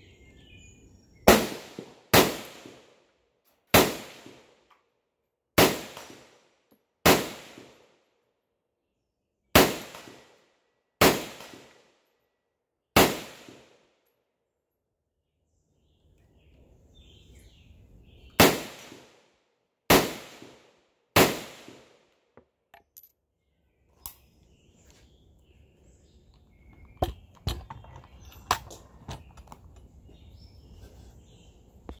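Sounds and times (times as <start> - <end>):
rifle shots with ringing tail: 1.2 - 2.9, 3.7 - 4.6, 5.6 - 6.4, 7.0 - 7.9, 9.5 - 10.4, 11.0 - 11.9, 13.0 - 13.8, 18.4 - 19.2, 19.9 - 22.0.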